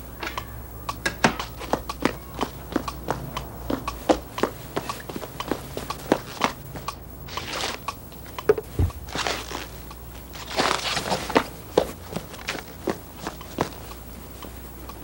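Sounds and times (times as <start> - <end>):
cartoon sharp taps and knocks: 0.2 - 7.0
rustling bursts: 4.2 - 14.8.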